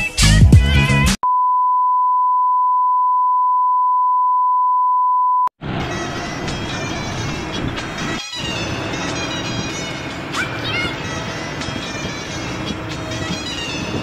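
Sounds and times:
steady test tone beep: 0:01.2 - 0:05.5.

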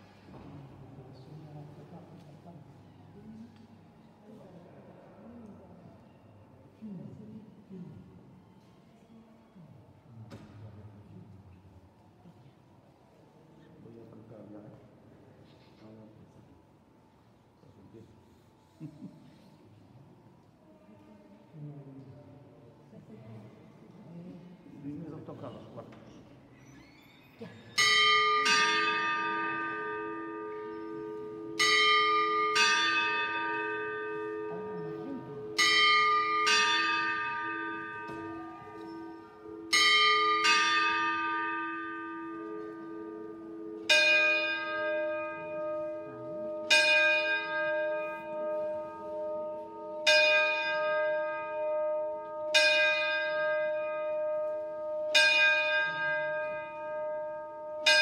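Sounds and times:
ding-dong on small bells: 0:27.8 - 0:58.0.

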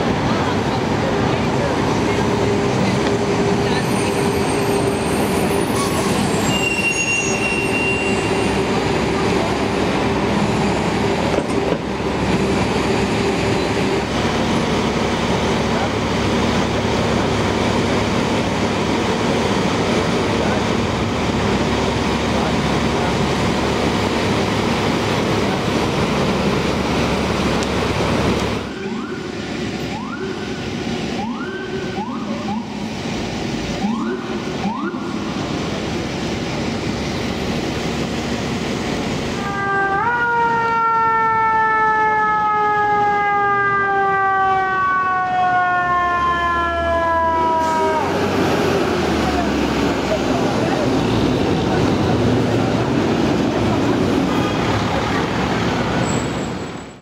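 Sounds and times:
engine and street rumble: 0:00.0 - 0:57.0
fire engine siren: 0:02.1 - 0:35.8, 0:39.2 - 0:52.1.

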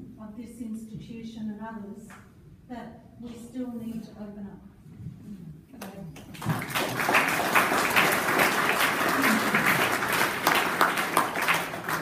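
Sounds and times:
audience clapping: 0:05.8 - 0:12.0.

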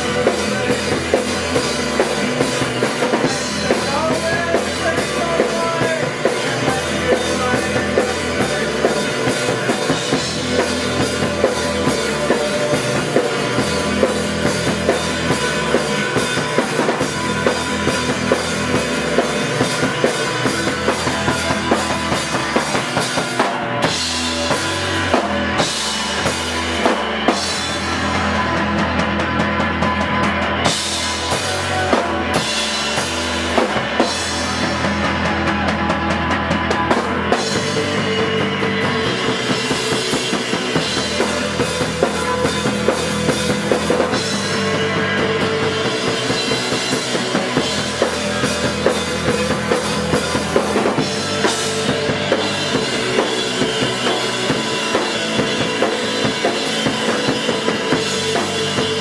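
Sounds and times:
bass guitar: 0:00.0 - 0:59.0
drum kit steady beat: 0:00.0 - 0:59.0
electric guitar: 0:00.0 - 0:59.0.

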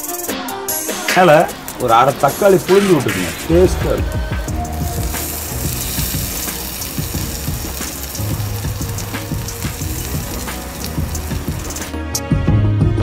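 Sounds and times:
soft background music: 0:00.0 - 0:13.0
omelette sizzling on griddle: 0:00.7 - 0:02.9, 0:04.3 - 0:12.0.

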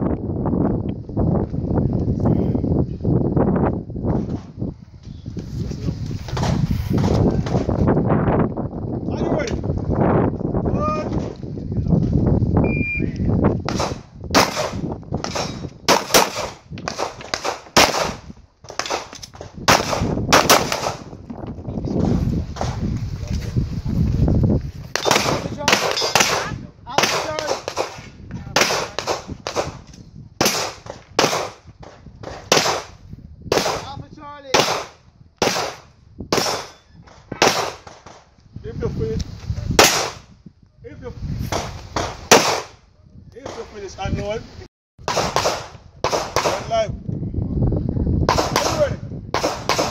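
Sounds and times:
pistol shots: 0:13.7 - 0:21.1, 0:24.9 - 0:29.8, 0:30.4 - 0:33.9, 0:34.5 - 0:38.2, 0:39.8 - 0:40.2, 0:41.5 - 0:42.8, 0:45.0 - 0:46.7, 0:48.3 - 0:49.9
handgun shots: 0:25.0 - 0:29.7, 0:32.2 - 0:32.9, 0:41.5 - 0:42.7, 0:45.1 - 0:46.7.

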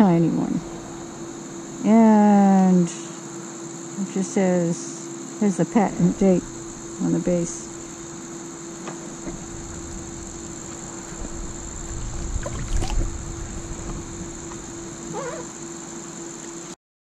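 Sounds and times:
high-pitched insect chorus: 0:00.0 - 0:16.8
handling and water noise: 0:08.8 - 0:15.6, 0:16.4 - 0:16.8.

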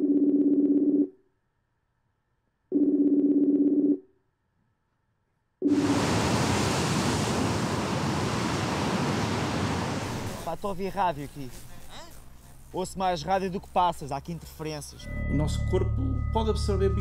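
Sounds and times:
sea surf rushing: 0:05.7 - 0:10.9.

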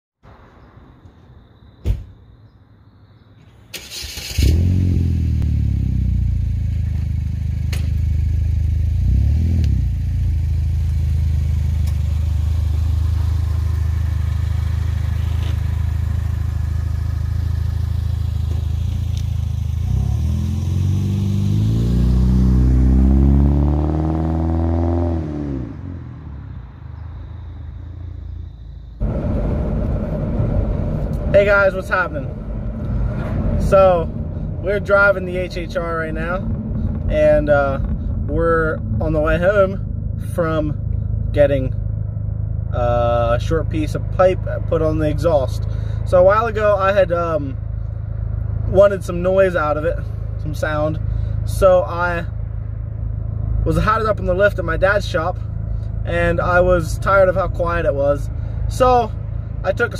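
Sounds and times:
car engine cranking: 0:03.7 - 0:05.4, 0:29.0 - 0:42.2
car engine idling and revving: 0:03.9 - 0:59.9.

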